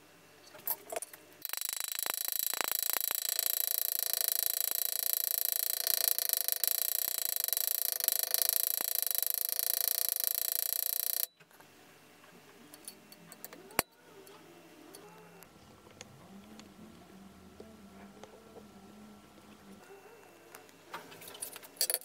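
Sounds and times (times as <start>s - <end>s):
punch tool hammering copper: 1.4s - 11.3s.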